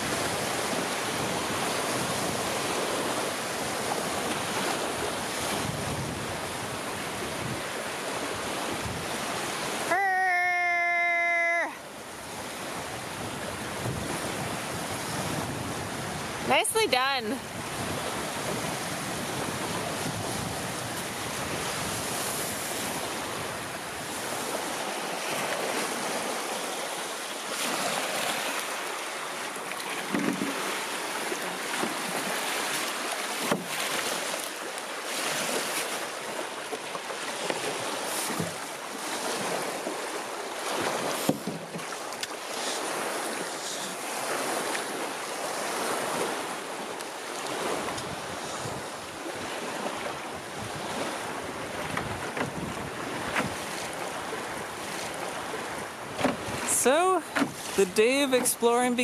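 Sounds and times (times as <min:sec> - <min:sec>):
lake water lapping: 0:00.0 - 0:59.0
wind: 0:00.0 - 0:59.0
knocks or splashes: 0:29.8 - 0:30.7, 0:40.8 - 0:42.8, 0:56.2 - 0:58.5.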